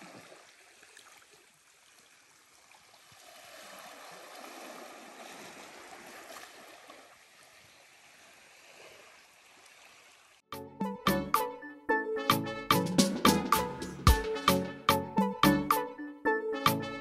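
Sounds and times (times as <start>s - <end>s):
small waves lapping on sand: 0.0s - 10.4s.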